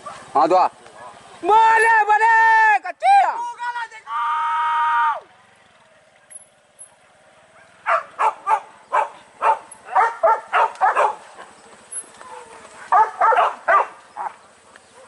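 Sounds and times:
dogs barking: 0:00.0 - 0:01.2, 0:07.3 - 0:15.0.

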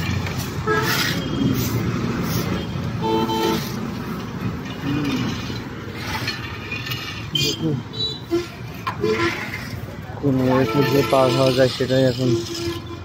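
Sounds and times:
road traffic rumble: 0:00.0 - 0:13.0
vehicle horn honk: 0:02.6 - 0:03.7.

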